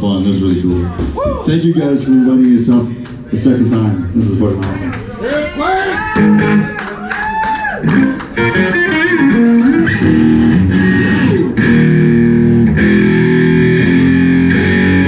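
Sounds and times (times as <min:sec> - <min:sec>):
bass guitar: 0:06.0 - 0:06.9, 0:07.7 - 0:15.0
electric guitars: 0:06.0 - 0:15.0.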